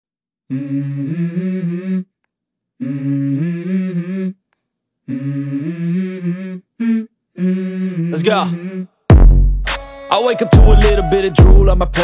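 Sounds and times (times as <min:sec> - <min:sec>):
person humming a melody: 0:00.5 - 0:02.1, 0:05.1 - 0:08.9, 0:10.4 - 0:12.0.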